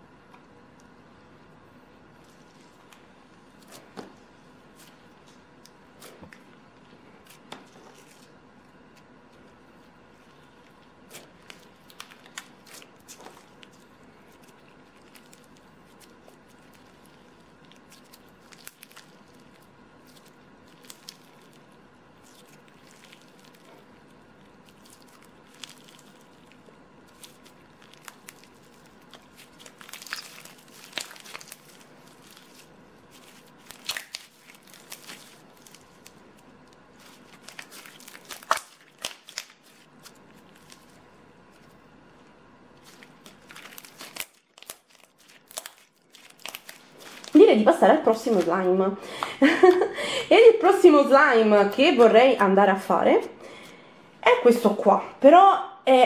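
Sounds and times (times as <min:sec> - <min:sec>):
slime crackling and popping: 0:10.2 - 0:48.7.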